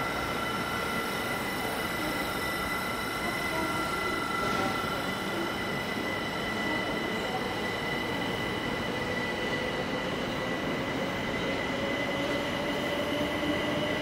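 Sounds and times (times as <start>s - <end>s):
electric train rumble and rail noise: 0.0s - 14.0s.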